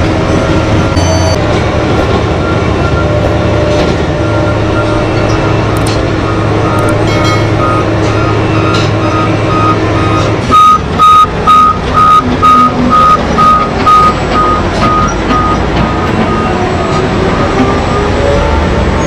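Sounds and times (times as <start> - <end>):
diesel engine drone: 0.0 - 19.0
reversing alarm beeping: 0.8 - 1.4, 4.2 - 17.2.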